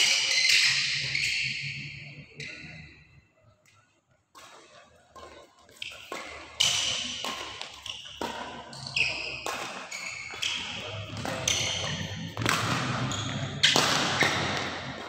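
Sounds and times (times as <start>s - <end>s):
shoes squeaking on court floor: 0.0s - 2.8s, 5.2s - 15.0s
rackets striking shuttlecock: 4.4s - 15.0s.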